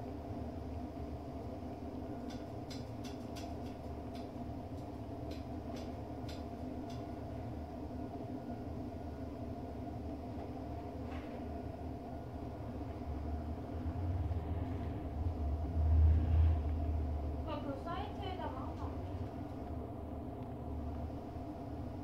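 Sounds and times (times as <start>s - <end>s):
steady mechanical hum: 0.0s - 22.0s
kitten suckling clicks: 2.3s - 7.0s.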